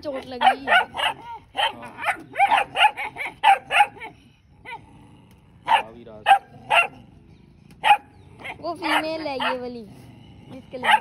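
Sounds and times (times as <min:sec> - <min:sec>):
dog barking: 0:00.0 - 0:04.8, 0:05.6 - 0:07.0, 0:07.8 - 0:09.8, 0:10.7 - 0:11.0.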